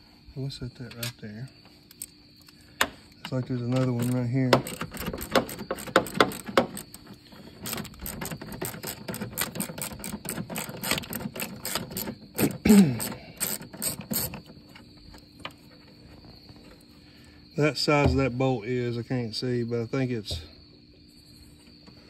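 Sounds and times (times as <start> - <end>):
hand ratchet clicking: 3.2 - 14.5.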